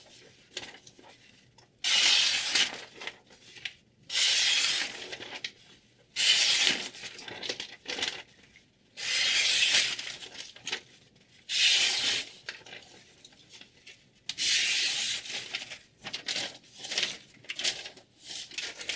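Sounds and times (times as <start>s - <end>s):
paper rustling: 0.0s - 1.5s, 4.7s - 8.6s, 9.3s - 18.9s
knife slicing paper: 6.2s - 6.9s, 9.0s - 10.0s, 11.5s - 12.4s, 14.4s - 15.5s.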